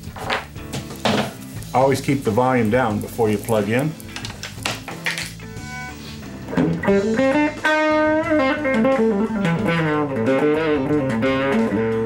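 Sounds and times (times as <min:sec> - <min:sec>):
electric guitar lead lines: 0:02.9 - 0:12.0.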